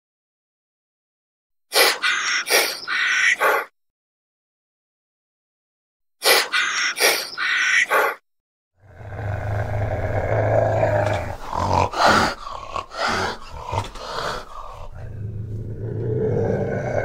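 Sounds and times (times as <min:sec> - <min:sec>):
animal growling: 0:08.8 - 0:17.0.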